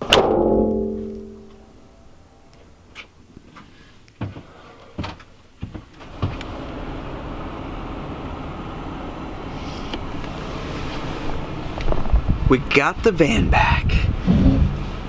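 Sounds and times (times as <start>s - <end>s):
knocks and clunks: 4.2s - 6.4s
low rumble in vehicle cabin: 4.4s - 15.0s.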